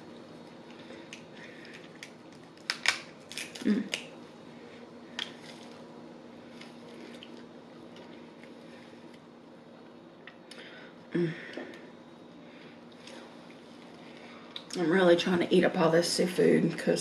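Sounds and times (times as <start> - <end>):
crab shell cracking by hand: 1.1 - 4.1.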